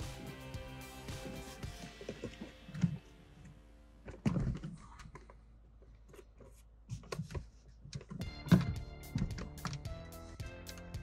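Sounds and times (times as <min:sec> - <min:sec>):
soft thumps and clicks of handling: 0:01.9 - 0:09.9.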